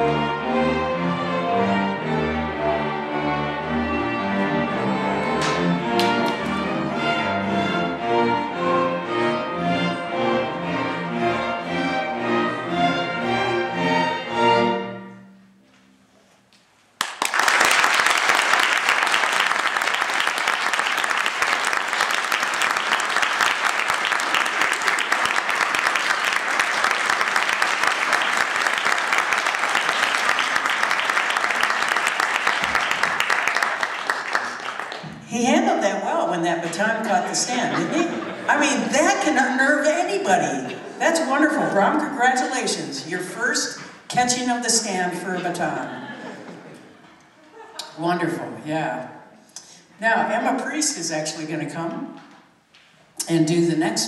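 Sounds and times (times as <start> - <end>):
string orchestra playing: 0.0 - 15.6, 20.4 - 47.0
audience applause: 5.4 - 6.7, 17.0 - 35.2.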